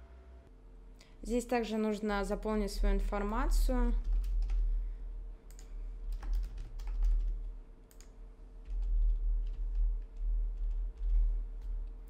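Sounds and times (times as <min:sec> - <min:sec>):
steady low hum: 0:00.0 - 0:12.0
typing on computer keyboard: 0:04.0 - 0:04.6, 0:05.5 - 0:11.8.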